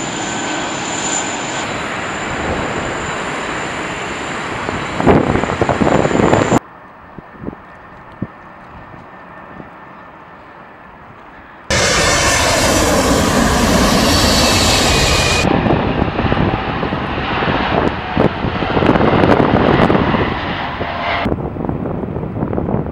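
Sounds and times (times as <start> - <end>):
jet engines roaring overhead: 0.0 - 22.9.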